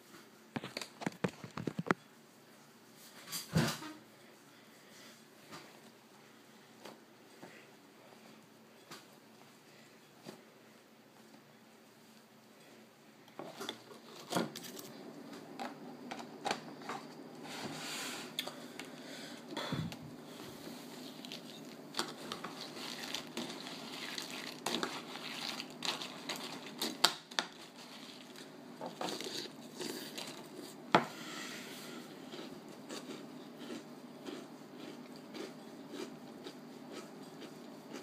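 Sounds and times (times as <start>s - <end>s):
rustling handling noise: 19.9s - 30.9s
chewing: 32.0s - 38.0s.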